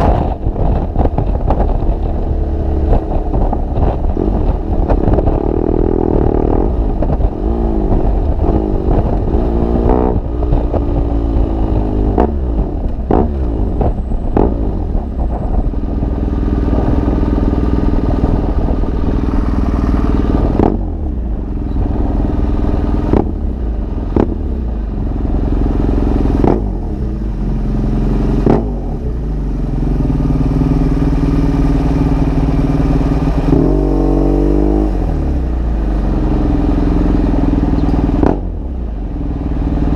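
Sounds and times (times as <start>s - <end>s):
exhaust cracks: 0.0s - 25.5s
motorcycle engine running: 0.0s - 39.9s.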